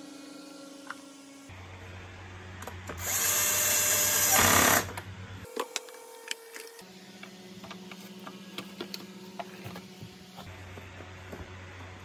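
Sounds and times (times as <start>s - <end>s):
cordless drill running: 3.0s - 4.9s.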